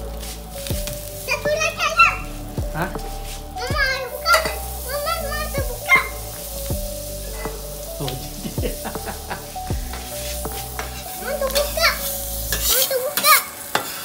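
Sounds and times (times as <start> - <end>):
patties sizzling in oil: 0.0 - 14.0
spatula scraping: 6.0 - 14.0.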